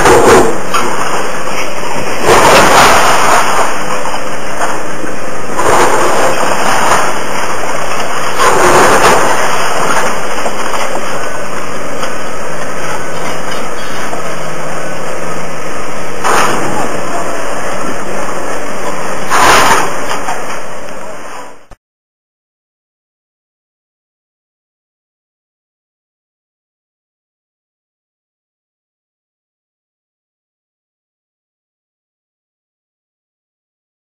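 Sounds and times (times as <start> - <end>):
concrete and debris crashing: 0.0 - 4.8, 5.5 - 14.4, 16.2 - 17.3, 19.0 - 20.6
excavator running: 0.0 - 21.8.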